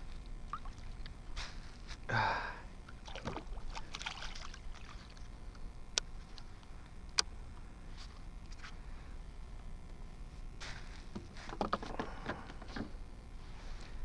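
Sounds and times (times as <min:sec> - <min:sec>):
fish splashing and thrashing: 0:02.9 - 0:05.3
knocks and rustling on kayak hull: 0:11.1 - 0:13.0.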